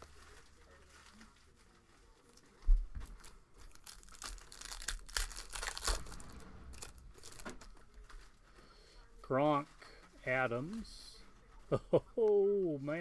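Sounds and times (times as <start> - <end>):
foil wrapper tearing and crinkling: 0.0 - 8.1.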